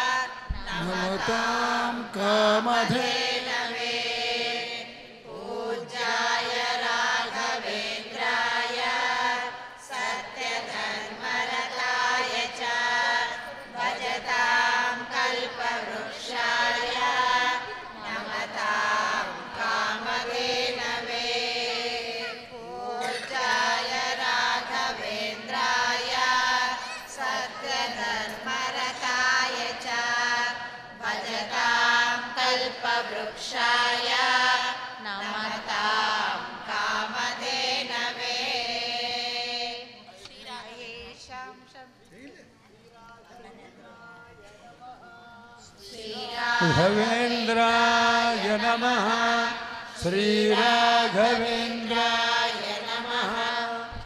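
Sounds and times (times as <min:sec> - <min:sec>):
group of voices chanting: 0:02.7 - 0:39.6.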